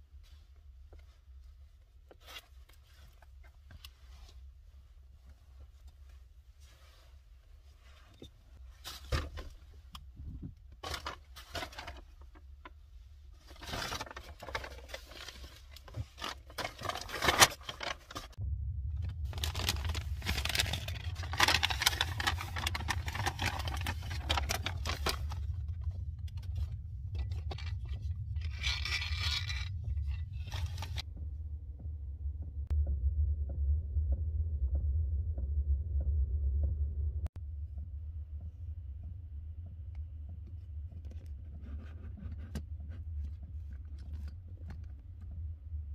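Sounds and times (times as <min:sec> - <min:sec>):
handling clicks and scrapes: 0:19.6 - 0:31.1.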